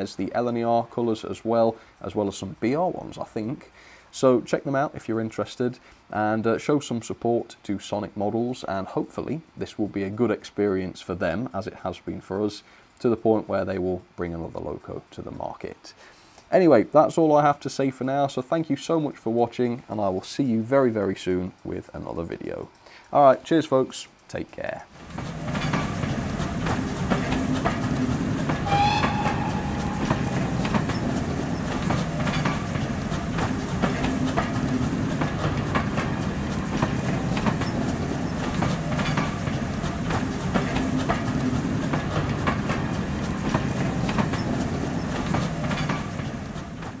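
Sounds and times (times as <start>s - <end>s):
wheels clicking over rail joints: 24.9s - 47.0s
train rumbling: 25.0s - 47.0s
train whistle: 28.6s - 31.6s.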